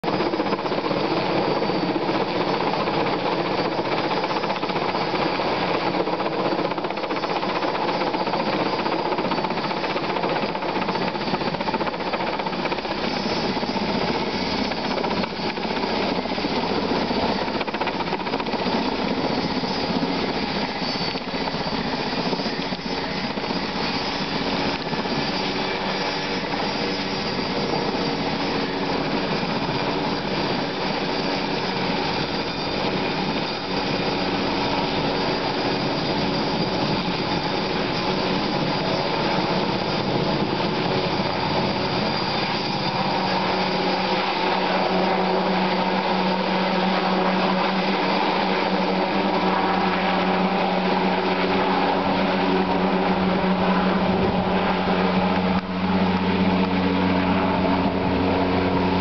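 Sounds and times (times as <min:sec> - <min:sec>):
helicopter turbine and rotor: 0:00.0 - 0:59.0.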